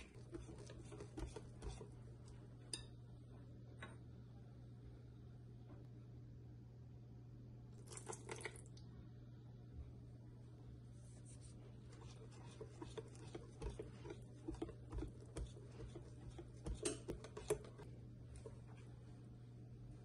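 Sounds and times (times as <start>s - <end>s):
whisk tapping glass bowl: 0.0s - 2.0s, 12.0s - 18.5s
wet stirring of batter: 0.0s - 2.8s, 11.0s - 19.4s.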